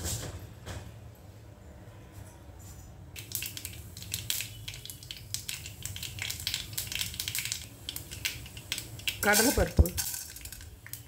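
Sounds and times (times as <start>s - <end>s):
seeds crackling in hot oil: 3.2s - 11.0s.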